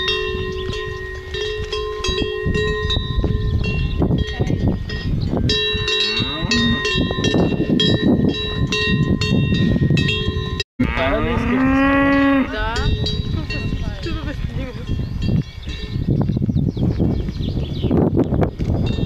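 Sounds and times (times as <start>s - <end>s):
cowbells ringing: 0.0s - 16.1s
cow mooing: 6.1s - 6.9s, 10.8s - 12.8s.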